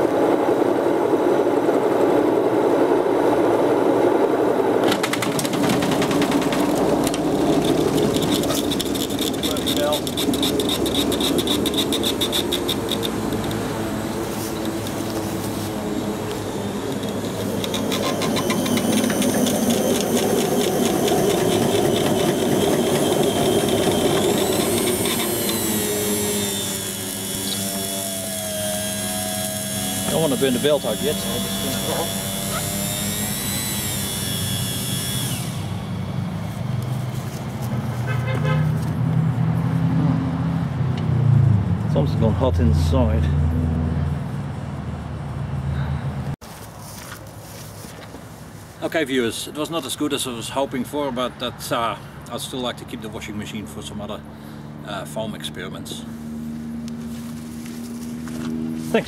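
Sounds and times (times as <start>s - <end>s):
rapid ticking rattle: 5.0s - 13.6s
washing machine motor running: 16.0s - 35.4s.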